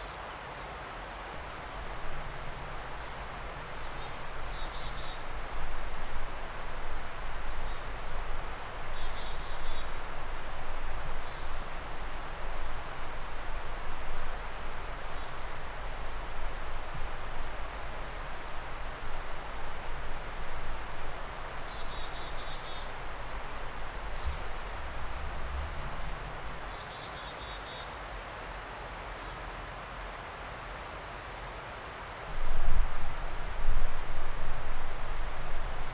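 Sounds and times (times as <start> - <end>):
outdoor background hiss: 0.0 - 35.9
small songbird singing: 3.6 - 13.8, 14.4 - 18.1, 19.2 - 25.3, 26.4 - 29.3, 32.6 - 35.9.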